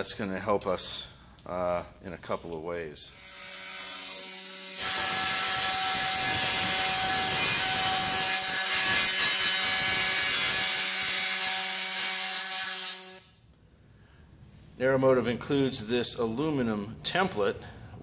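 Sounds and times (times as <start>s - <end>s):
pneumatic cutting tool buzzing: 3.2s - 13.2s.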